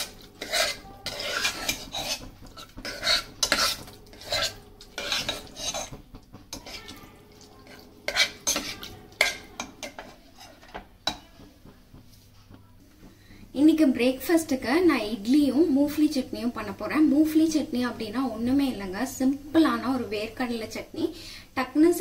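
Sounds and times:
ladle scraping pot: 0.0 - 11.3.

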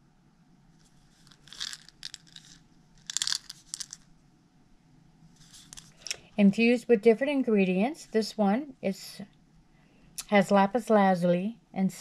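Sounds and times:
rawhide rattle shaking: 1.0 - 4.0.

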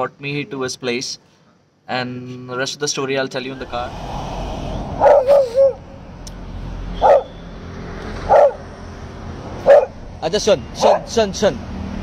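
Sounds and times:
dog barking: 5.0 - 5.8, 7.0 - 7.4, 8.2 - 8.6, 9.6 - 10.0, 10.8 - 11.2.

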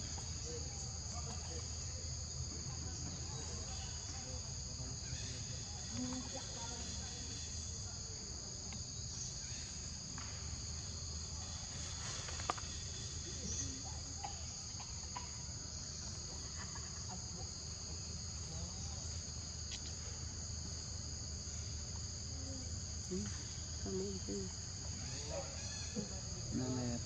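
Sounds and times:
insect chorus buzzing: 0.0 - 27.0.

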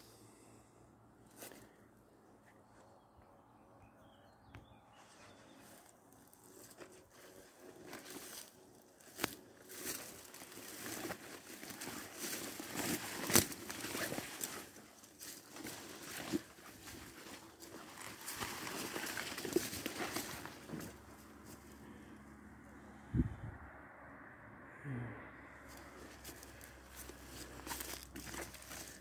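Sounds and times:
footsteps through undergrowth: 1.3 - 1.8, 4.9 - 22.2, 25.6 - 29.0
leaves and twigs crackling: 5.2 - 22.1, 25.7 - 29.0.

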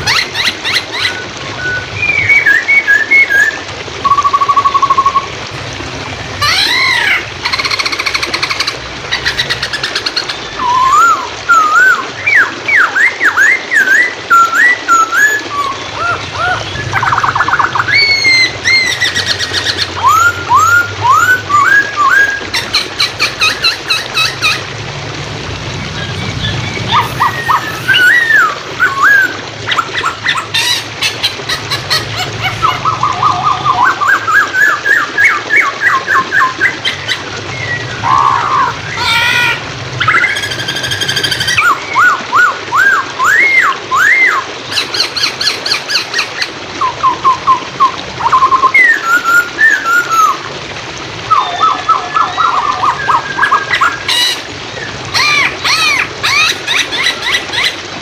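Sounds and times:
running water hiss: 0.0 - 58.0
bird singing whistled song: 1.0 - 5.3, 10.6 - 22.4, 26.0 - 29.4, 37.5 - 38.4.

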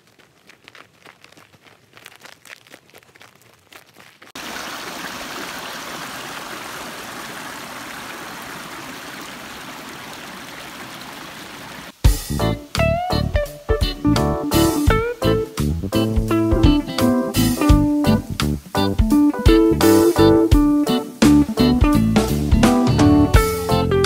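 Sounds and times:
footsteps crunching on snow: 0.0 - 5.0
creek running over rocks: 0.0 - 12.0
music: 12.0 - 24.0.

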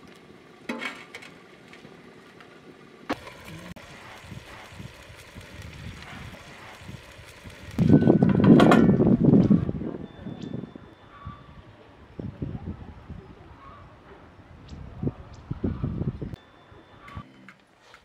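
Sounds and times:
faint outdoor background: 0.0 - 18.0.

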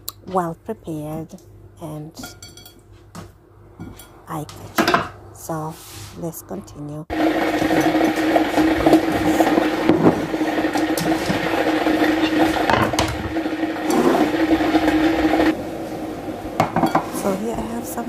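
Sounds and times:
kitchen appliance motor humming: 7.1 - 18.0.

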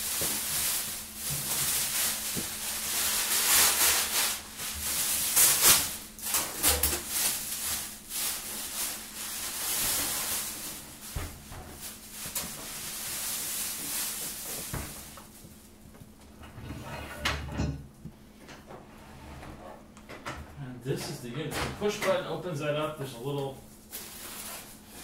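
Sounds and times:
plastic bag crinkling: 0.0 - 15.8, 23.4 - 25.0.

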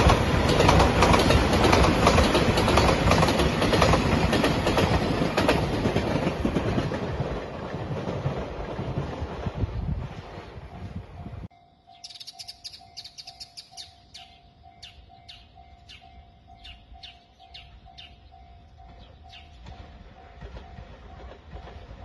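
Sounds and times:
passing train running noise: 0.0 - 22.0
level crossing alarm bell: 10.8 - 21.5
small birds chirping: 11.9 - 19.8.

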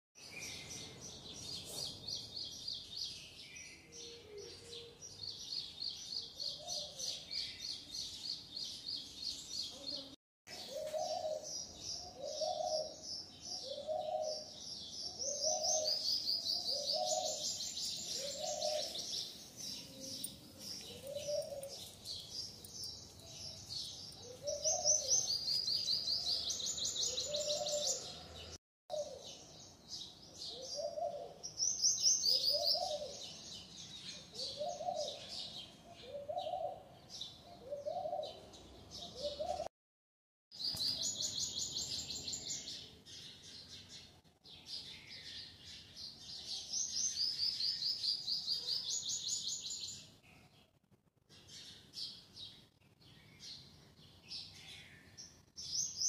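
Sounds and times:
small birds chirping: 0.2 - 39.7, 40.5 - 56.0
rising and falling bird call: 15.2 - 21.8.

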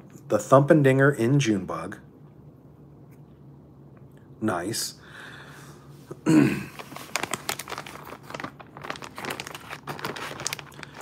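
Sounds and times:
plastic bag crinkling: 6.7 - 11.0.

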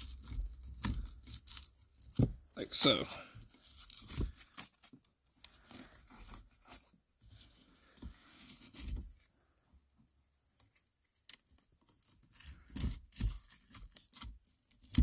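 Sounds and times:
plastic wrapping rustling: 0.0 - 9.3
velcro straps rustling: 0.0 - 9.3, 10.5 - 15.0.

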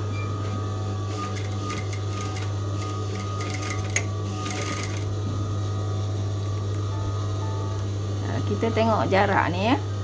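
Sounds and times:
sewing machine stitching: 1.0 - 5.1.

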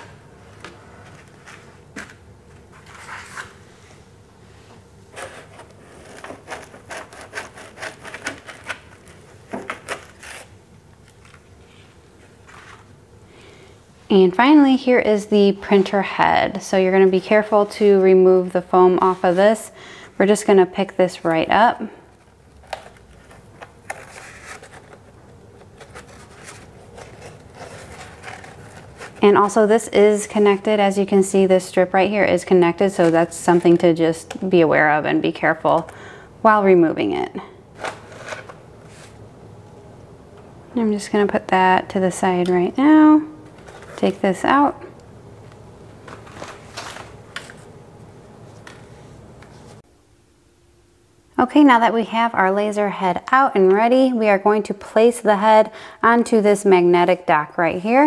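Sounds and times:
packing foam rustling: 22.5 - 29.5.

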